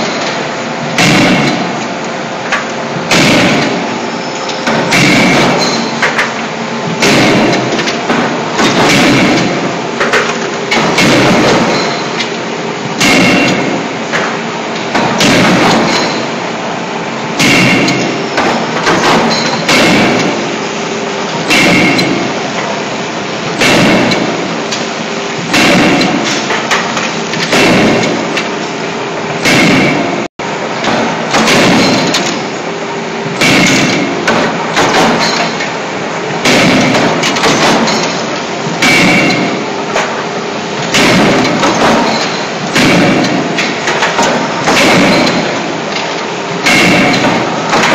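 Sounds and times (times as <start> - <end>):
forging hammer striking steel: 1.0 - 1.9, 2.5 - 4.0, 4.6 - 12.3, 13.0 - 16.4, 17.4 - 20.5, 21.4 - 22.7, 23.6 - 24.5, 25.4 - 28.5, 29.4 - 32.4, 33.4 - 35.8, 36.4 - 40.2, 40.9 - 47.9.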